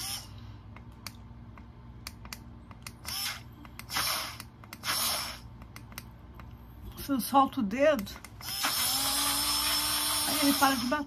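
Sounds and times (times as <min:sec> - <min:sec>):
mini blender motor running: 0:00.0 - 0:00.3, 0:03.0 - 0:05.4, 0:08.4 - 0:11.0.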